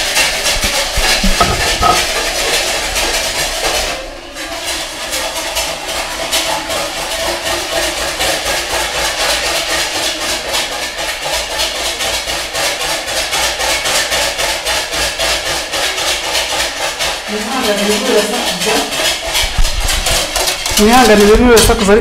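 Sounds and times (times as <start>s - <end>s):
whisk clicking against bowl: 15.9s - 22.0s.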